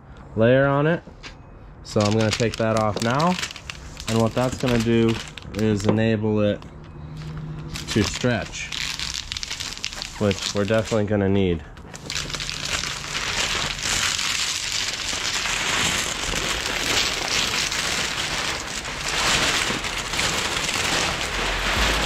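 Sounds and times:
plastic film crinkling: 0:01.9 - 0:11.1, 0:11.7 - 0:22.0.

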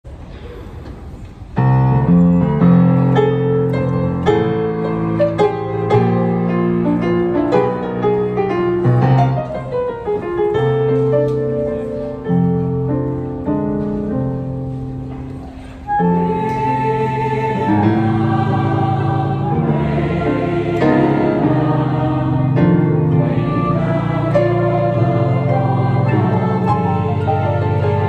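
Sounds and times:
slow chordal piano: 0:01.6 - 0:28.0.

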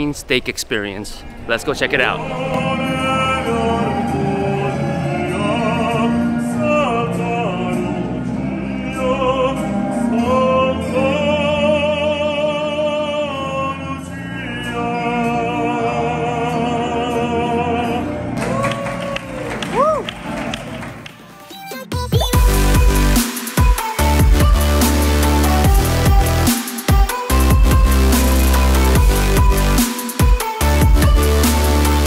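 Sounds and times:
musical accompaniment: 0:01.5 - 0:32.0
person singing opera: 0:02.3 - 0:20.1.

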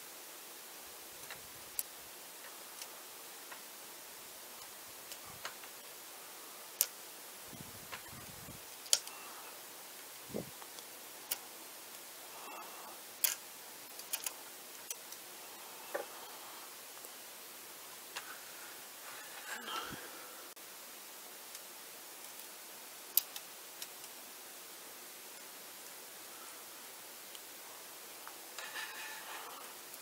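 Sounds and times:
background hiss: 0:00.0 - 0:30.0
small sharp clicks and ticks: 0:01.2 - 0:03.8, 0:04.5 - 0:05.9, 0:06.7 - 0:07.0, 0:07.9 - 0:15.3, 0:21.4 - 0:24.3, 0:27.2 - 0:27.6.

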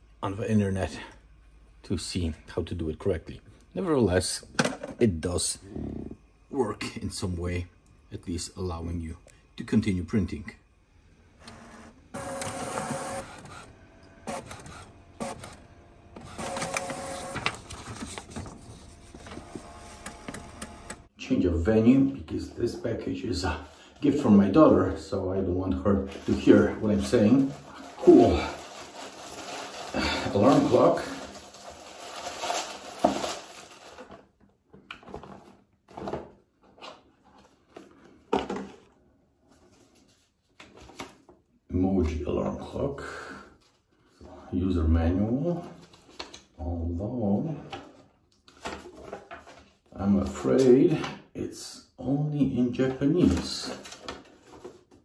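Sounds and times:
printer mechanism noises: 0:11.4 - 0:21.1
printer motor hum: 0:11.4 - 0:21.1
plastic packaging crinkling: 0:26.1 - 0:34.3.

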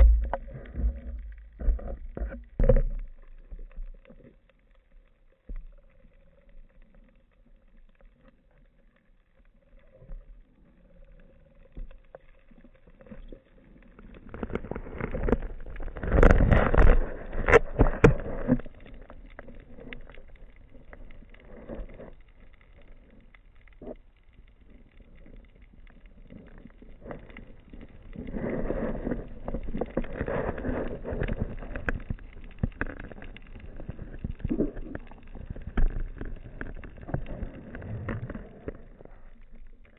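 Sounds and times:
muffled underwater rushing: 0:00.0 - 0:04.3, 0:26.3 - 0:39.9.

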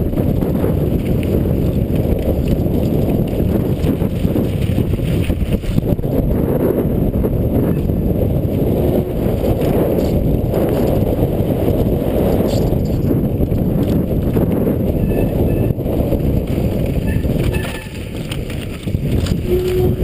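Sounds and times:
bike tyres rumbling on gravel: 0:00.0 - 0:20.0
wind buffeting microphone: 0:00.0 - 0:20.0
short high squeaks: 0:17.1 - 0:18.0.

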